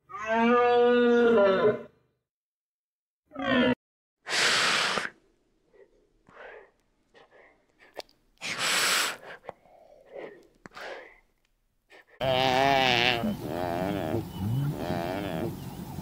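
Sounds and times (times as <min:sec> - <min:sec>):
farm animal bleating: 0:12.2 - 0:15.6.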